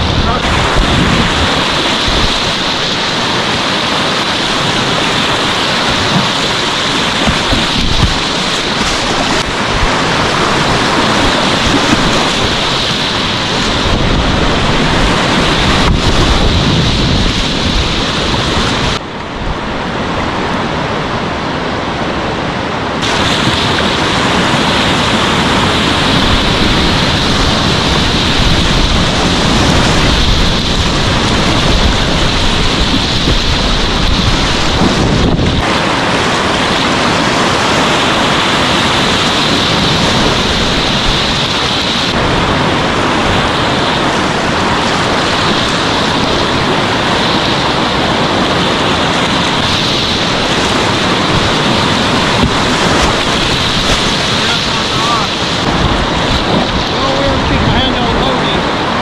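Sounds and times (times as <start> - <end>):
whitewater rapid rushing: 0.0 - 59.0.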